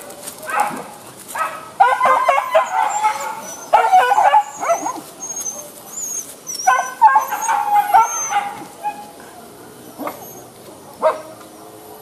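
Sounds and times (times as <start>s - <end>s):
dogs whining and yipping: 1.8s - 9.2s, 9.8s - 10.6s.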